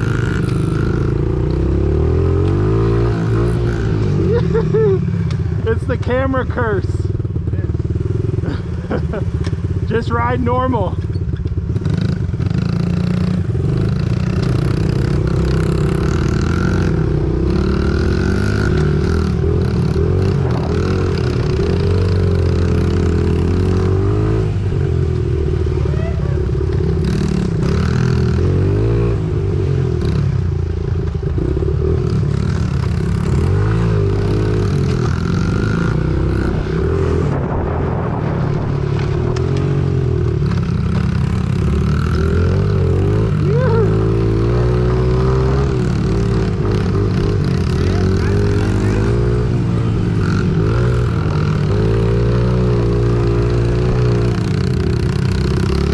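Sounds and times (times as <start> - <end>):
small engine revving: 40.5 - 55.9.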